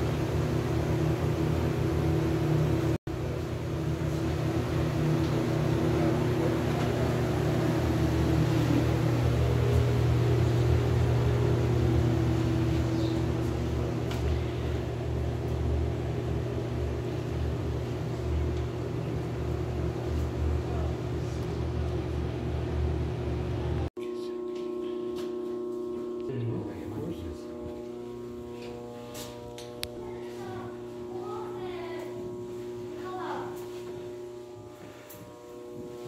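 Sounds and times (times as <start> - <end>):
low machinery hum: 0.0 - 36.0.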